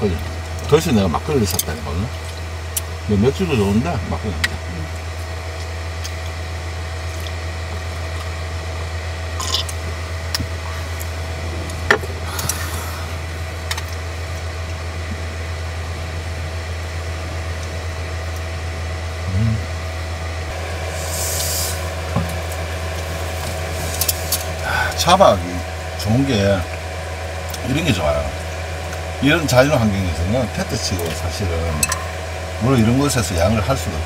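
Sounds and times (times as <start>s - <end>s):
steady low hum: 0.0s - 34.0s
gas hissing from bottle cap: 21.0s - 21.9s.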